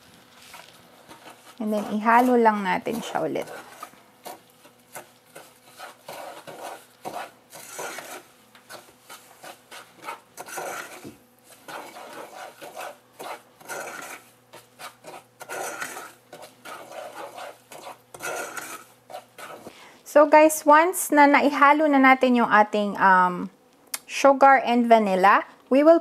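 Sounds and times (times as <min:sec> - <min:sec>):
wooden spoon scraping saucepan: 0:00.2 - 0:19.7.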